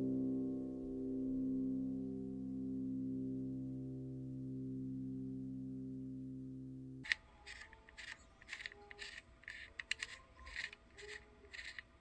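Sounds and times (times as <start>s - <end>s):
thermostat dial clicks: 7.0s - 12.0s.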